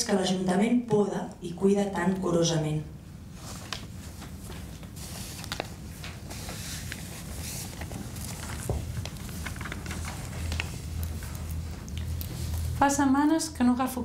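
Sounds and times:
low room hum: 0.0 - 14.0
script pages rustling: 3.3 - 12.8.

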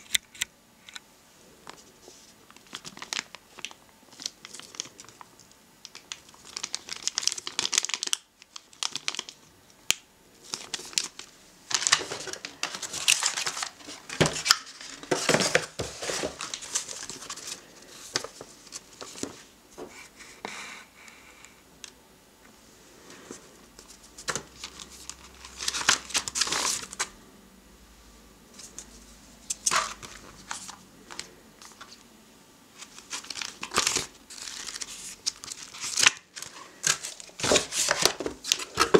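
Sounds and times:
paper booklets leafed: 1.6 - 19.5, 23.1 - 27.1, 28.6 - 32.0, 32.8 - 38.9
plastic bags crinkling: 2.5 - 9.5, 10.4 - 19.4, 23.8 - 27.1, 32.8 - 38.9.

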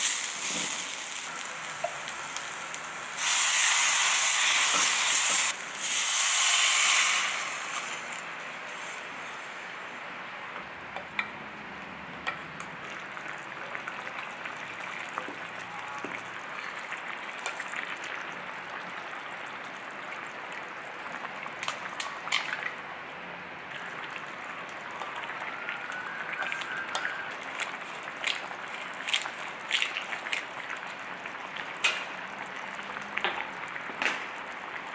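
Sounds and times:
stew hissing on burner: 0.0 - 9.5
chili paste sizzling loudly: 0.0 - 10.0, 23.8 - 31.5.

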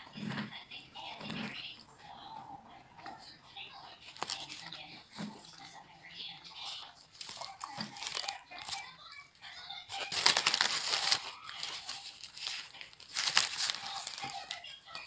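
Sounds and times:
wrapper crinkling and rustling: 4.1 - 5.5, 6.6 - 8.9, 9.9 - 15.0.

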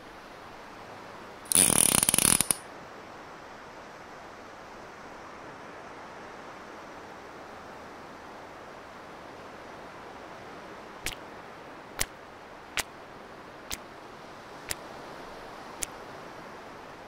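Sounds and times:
steady hiss: 1.5 - 2.6.

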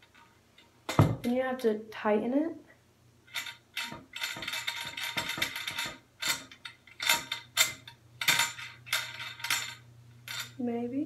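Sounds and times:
metallic rattles and clicks: 3.3 - 10.7.

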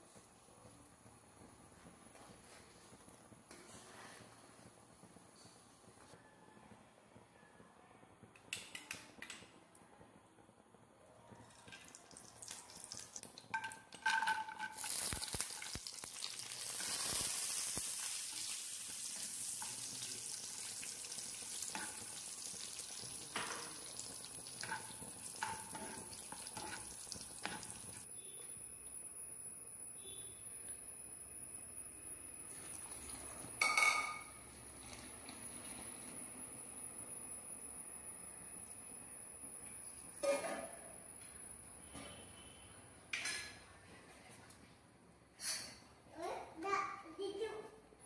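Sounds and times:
nuts sizzling in a pan: 11.4 - 41.8.

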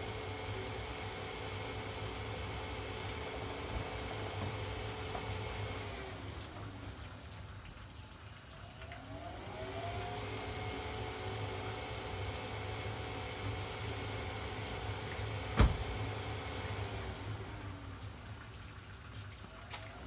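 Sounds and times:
electric fan motor whine: 0.0 - 6.8, 9.0 - 18.0.

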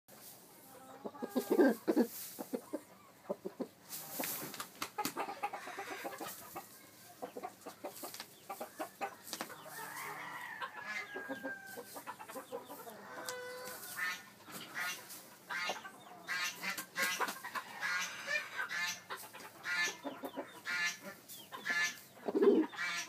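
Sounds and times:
scratching in dry straw: 0.1 - 2.8, 3.5 - 4.7, 5.5 - 20.0
rooster clucking: 0.7 - 23.0
rooster drawn-out call: 9.8 - 11.9.

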